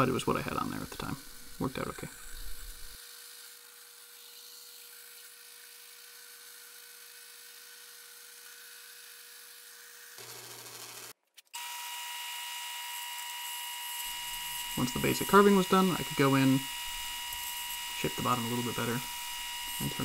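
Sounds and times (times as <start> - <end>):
bandsaw running: 0.0 - 20.0
wood lathe whine: 0.9 - 20.0.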